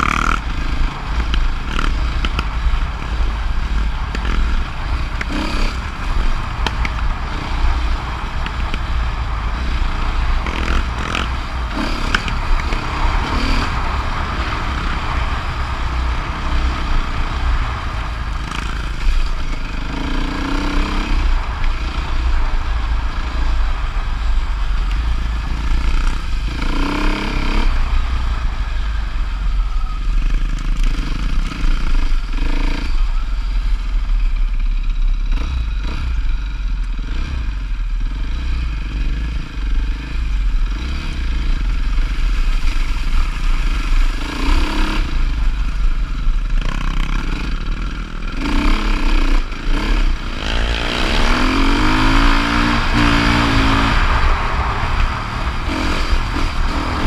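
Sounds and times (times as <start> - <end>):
gravel clattering under tyres: 0.0 - 33.4
dirt bike engine running: 0.0 - 57.0.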